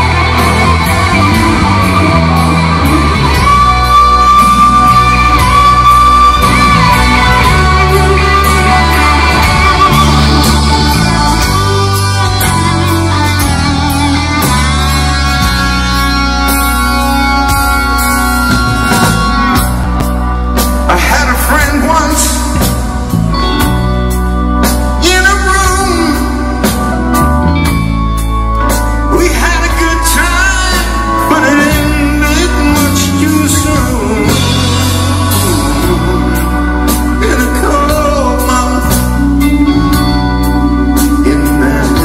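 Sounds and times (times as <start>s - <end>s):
rock band playing blues ballad: 0.0s - 42.0s
man singing: 20.8s - 22.9s, 25.0s - 27.1s, 29.1s - 42.0s.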